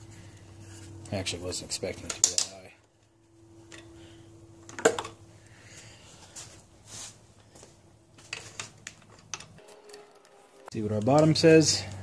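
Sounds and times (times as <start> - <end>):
faint steady hum: 0.0 - 12.0
clicks and knocks of handling hose: 2.0 - 3.0.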